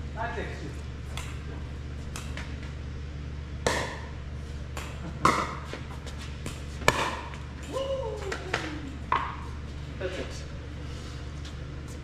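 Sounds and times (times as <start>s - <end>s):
low hum: 0.0s - 12.0s
ball pocking off paddles: 4.7s - 9.4s.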